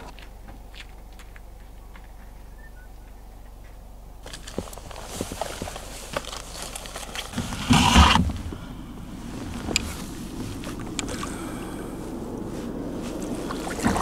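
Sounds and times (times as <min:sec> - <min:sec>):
light clicks of gear: 0:00.0 - 0:07.4, 0:09.6 - 0:11.4
loud rustling knock: 0:07.3 - 0:08.6
wind rumble on microphone: 0:07.3 - 0:14.0.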